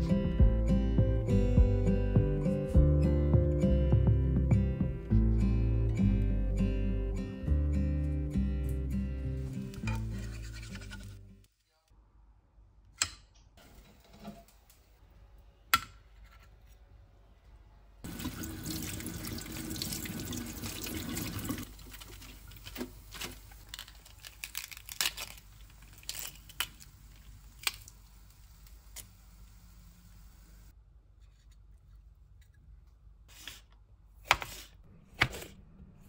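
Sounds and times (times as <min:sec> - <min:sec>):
lettuce leaves crackling and tearing: 0:21.7 - 0:28.0.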